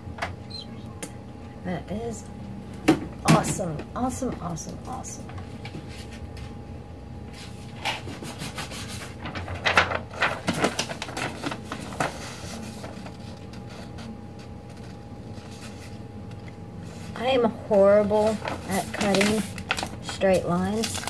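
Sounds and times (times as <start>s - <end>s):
faint steady hum: 0.0s - 21.0s
paper rustling: 7.3s - 17.3s, 18.0s - 21.0s.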